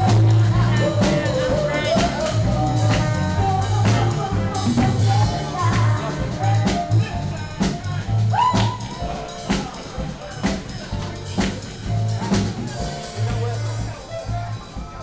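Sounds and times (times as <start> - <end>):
woman singing: 0.0 - 9.3
saxophone: 0.0 - 9.4
drum kit: 0.0 - 15.0
electric bass: 0.0 - 15.0.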